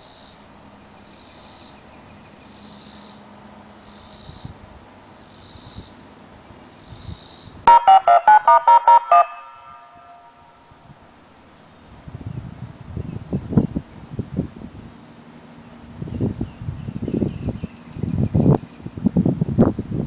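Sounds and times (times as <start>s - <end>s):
touch-tone beeps from siren speakers: 7.7s - 10.4s.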